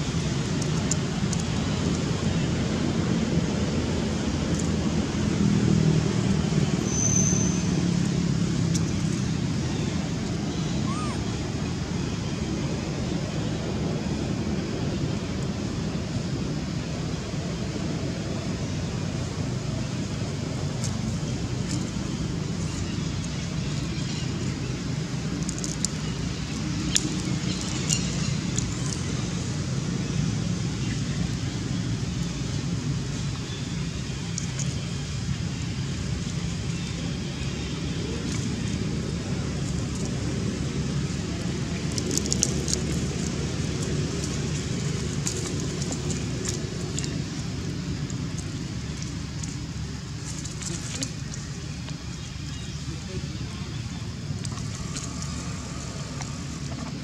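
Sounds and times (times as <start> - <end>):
low background rumble: 0.0 - 57.0
faint sharp clicks: 0.6 - 1.5, 41.8 - 47.2
dry leaves crackling and rustling: 37.9 - 52.8, 54.1 - 57.0.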